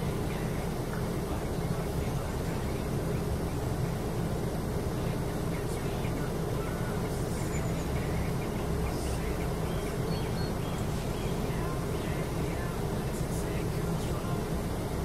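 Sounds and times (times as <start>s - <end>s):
low outdoor rumble: 0.0s - 15.0s
faint high chirps: 7.4s - 8.2s, 9.6s - 11.5s.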